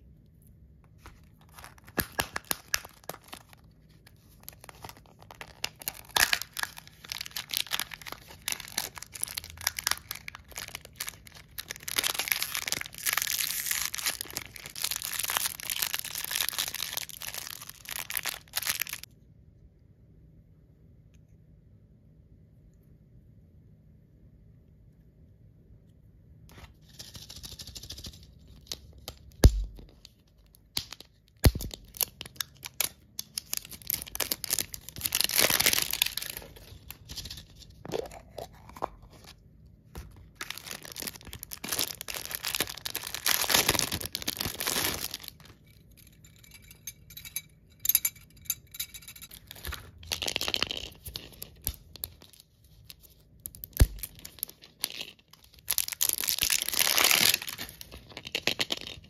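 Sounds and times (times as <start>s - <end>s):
plastic wrappers crinkling and tearing: 1.0s - 19.1s, 28.5s - 39.4s, 40.0s - 45.8s, 49.2s - 59.0s.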